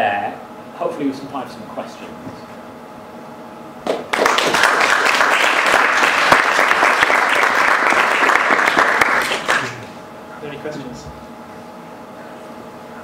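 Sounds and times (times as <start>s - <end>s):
audience applause: 4.1s - 9.9s.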